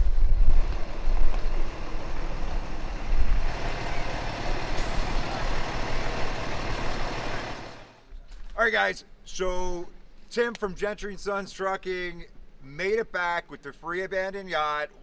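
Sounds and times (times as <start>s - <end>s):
diesel truck engine rumbling: 0.0s - 8.0s
brief high hiss: 4.7s - 5.2s.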